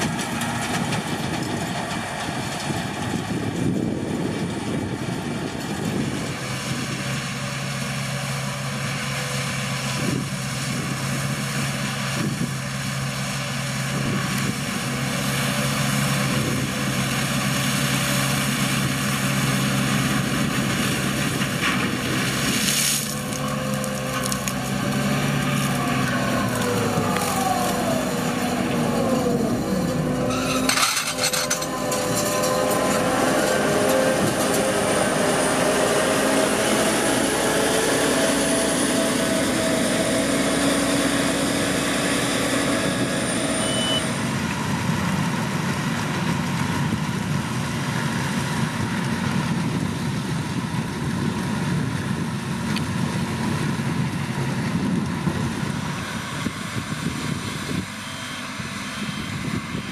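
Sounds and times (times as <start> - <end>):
diesel engine of heavy machinery: 0.0 - 59.9
machinery clatter: 23.0 - 35.8.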